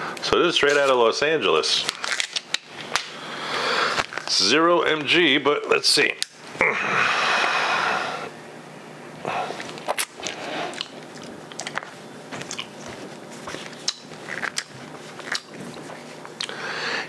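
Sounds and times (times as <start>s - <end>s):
mouth clicks and lip smacks: 13.7s - 15.5s.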